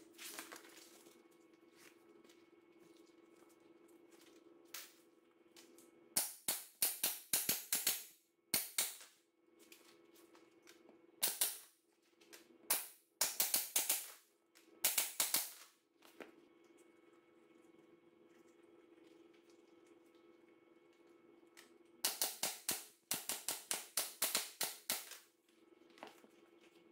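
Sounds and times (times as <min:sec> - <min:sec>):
staple gun firing: 0:12.7 - 0:14.2, 0:22.0 - 0:25.2.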